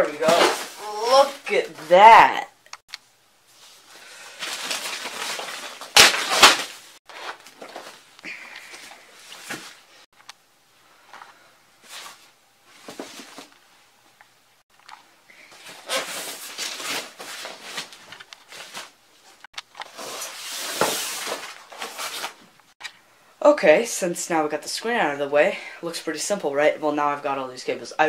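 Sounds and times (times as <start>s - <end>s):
plastic wrap crinkling: 4.1s - 8.1s
styrofoam packing handled: 4.3s - 8.1s.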